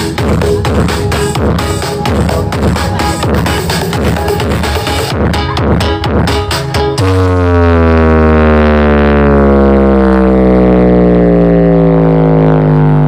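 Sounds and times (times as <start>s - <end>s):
electronic dance music beat: 0.0s - 9.5s
deep droning bass note: 0.0s - 13.0s.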